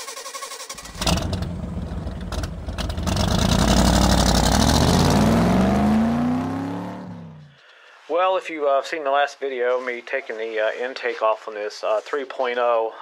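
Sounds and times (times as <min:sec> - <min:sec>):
car engine starting and revving: 0:00.6 - 0:07.5.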